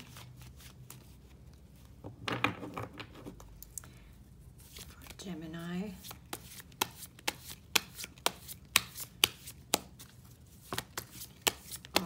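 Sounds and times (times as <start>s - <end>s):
cards being shuffled by hand: 4.6s - 12.0s.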